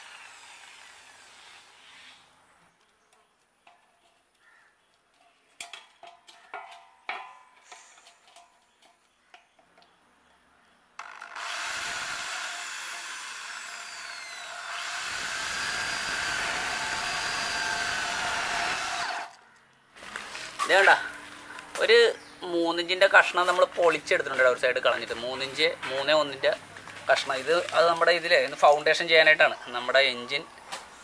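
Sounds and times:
angle grinder cutting metal: 0:00.0 - 0:01.9, 0:11.0 - 0:19.3
metal tapping: 0:05.6 - 0:09.9.

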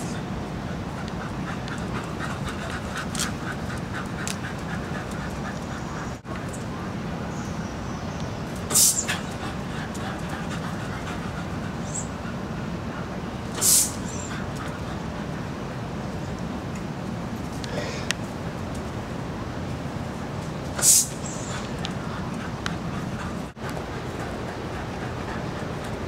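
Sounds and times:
outdoor background hum: 0:00.0 - 0:26.0
short loud hissing: 0:08.7 - 0:09.1, 0:13.5 - 0:14.2, 0:20.8 - 0:21.2.

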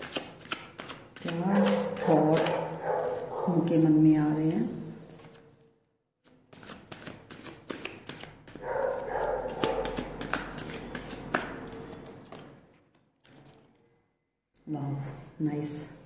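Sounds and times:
cards shuffled by hand: 0:00.0 - 0:03.3, 0:06.2 - 0:12.6.

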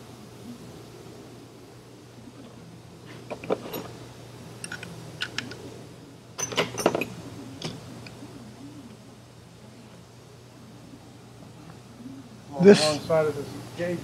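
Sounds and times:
steady low hum: 0:00.0 - 0:14.0
steel tools clinking: 0:04.6 - 0:05.6, 0:06.4 - 0:07.8.

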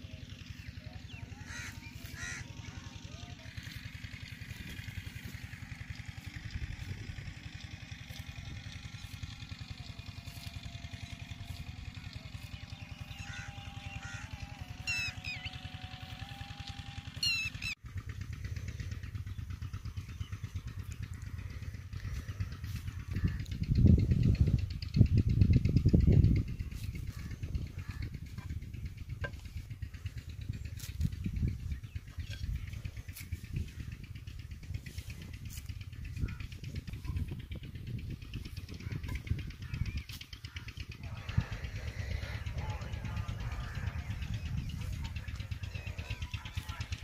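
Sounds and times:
small engine running: 0:00.0 - 0:47.0
bird chirps: 0:10.1 - 0:17.8
wind rumble on microphone: 0:18.1 - 0:47.0.

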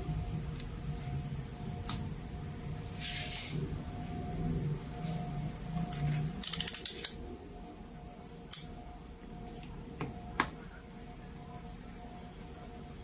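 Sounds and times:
multimeter probes clicking: 0:05.9 - 0:07.2, 0:08.5 - 0:08.8.

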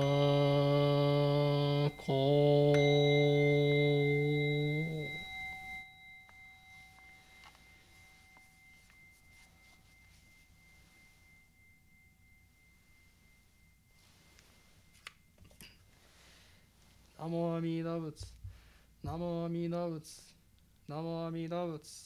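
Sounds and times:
person chanting: 0:00.0 - 0:05.8
bowl bell ringing: 0:00.0 - 0:18.0.

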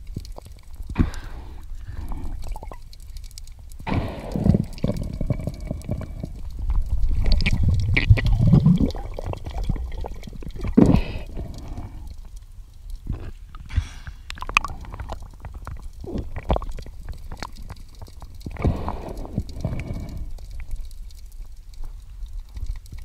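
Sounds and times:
muffled underwater gurgling: 0:03.8 - 0:12.3, 0:13.0 - 0:20.4.

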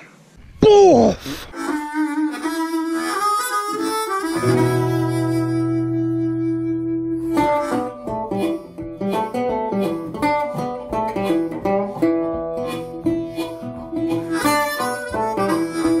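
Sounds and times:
harmonica: 0:01.4 - 0:16.0
plucked acoustic guitar: 0:04.2 - 0:16.0.

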